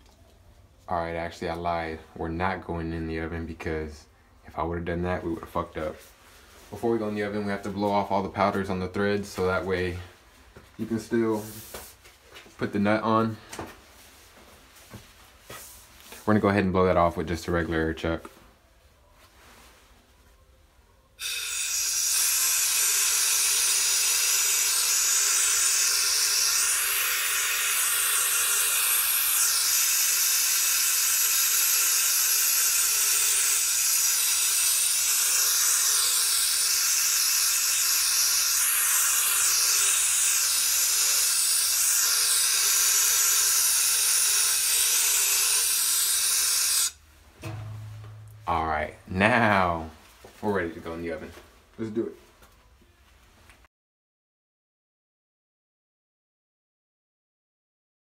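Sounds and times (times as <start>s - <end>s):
compressed air hissing: 21.2s - 47.0s.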